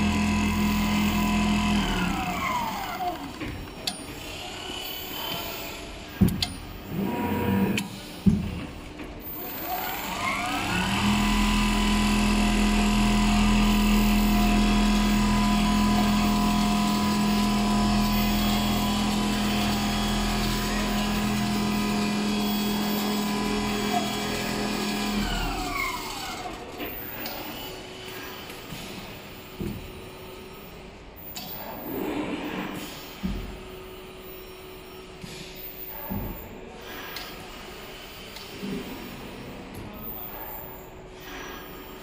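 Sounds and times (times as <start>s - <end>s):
sewing machine motors whining: 0.0s - 6.2s, 6.8s - 8.0s, 9.3s - 29.4s.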